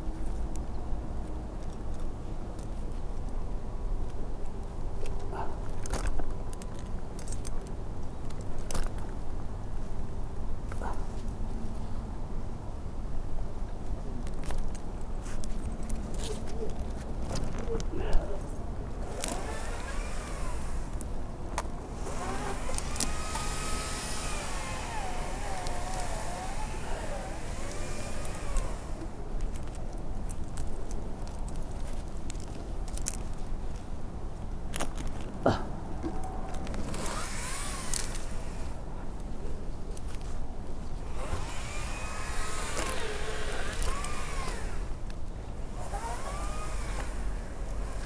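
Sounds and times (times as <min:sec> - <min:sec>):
rope shifting: 0:15.3 - 0:33.8, 0:34.7 - 0:38.8, 0:41.0 - 0:48.0
climbing hardware clicking: 0:19.0 - 0:33.4, 0:36.1 - 0:38.8, 0:41.0 - 0:48.0.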